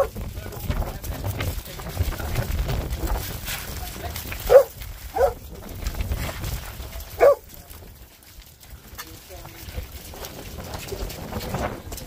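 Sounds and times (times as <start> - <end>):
dog barking: 4.5 - 5.4, 7.2 - 7.4.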